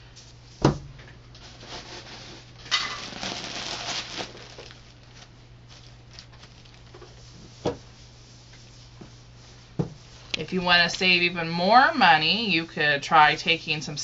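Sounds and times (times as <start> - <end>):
plastic bag crinkling: 2.0 - 7.4.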